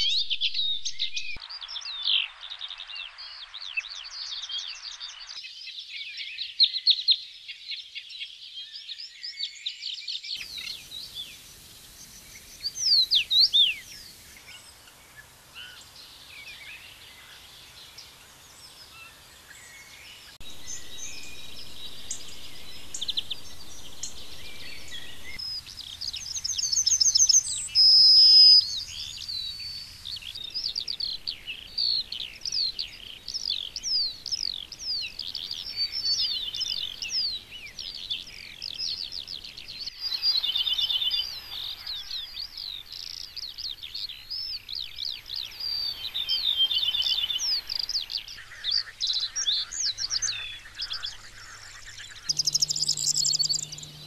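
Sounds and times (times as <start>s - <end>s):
songbirds chirping and trilling: 0.0s - 54.0s
loud high whistled bird note: 20.4s - 25.6s, 52.3s - 54.0s.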